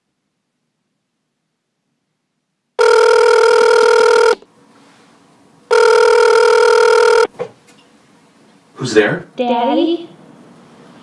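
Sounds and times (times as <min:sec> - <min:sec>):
telephone bell ringing: 0:02.8 - 0:04.4, 0:05.7 - 0:07.3.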